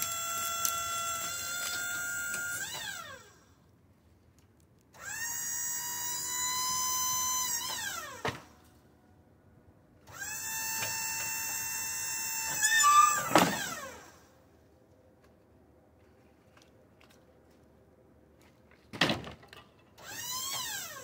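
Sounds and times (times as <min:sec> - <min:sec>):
electric motor whining: 0:10.1 - 0:14.2.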